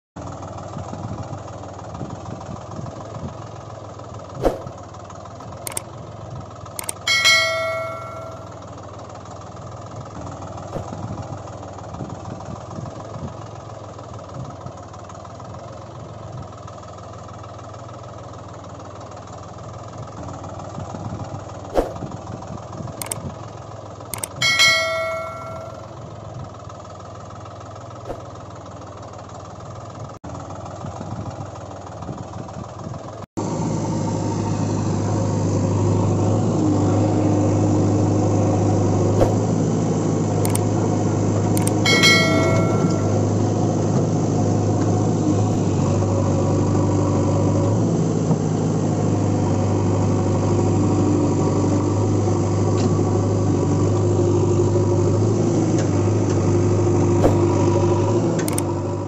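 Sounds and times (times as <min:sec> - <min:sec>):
low engine drone: 0:00.2 - 0:14.5, 0:20.0 - 0:26.3, 0:30.3 - 0:59.0
bell ding: 0:06.8 - 0:08.6, 0:24.2 - 0:26.0, 0:41.6 - 0:43.4.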